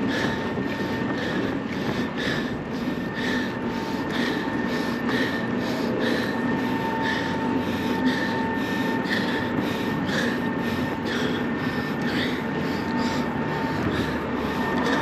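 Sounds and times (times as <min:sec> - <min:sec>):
road traffic rumble: 0:11.0 - 0:15.0.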